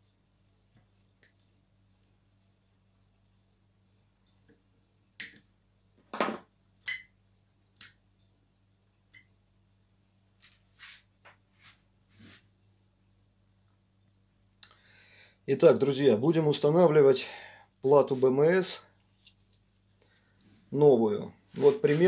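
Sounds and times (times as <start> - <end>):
cutters set down on wooden table: 6.1 - 6.5.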